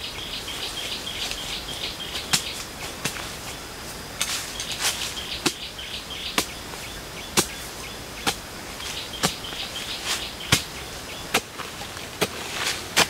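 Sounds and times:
small birds chirping: 0:00.0 - 0:12.7
hand tool chopping into soil: 0:02.2 - 0:03.4, 0:07.3 - 0:07.6, 0:09.2 - 0:13.0.

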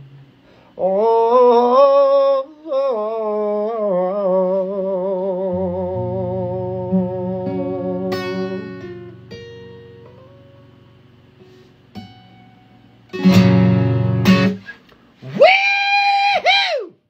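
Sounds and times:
man singing with vibrato: 0:00.0 - 0:09.2
acoustic guitar: 0:00.0 - 0:15.6.

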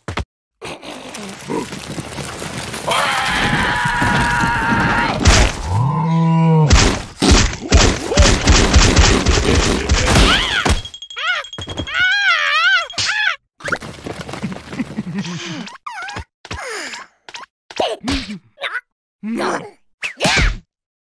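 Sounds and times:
thuds and knocks: 0:06.7 - 0:11.0
wavering cartoon wails: 0:10.0 - 0:13.3
cartoon character crying: 0:10.0 - 0:13.4.

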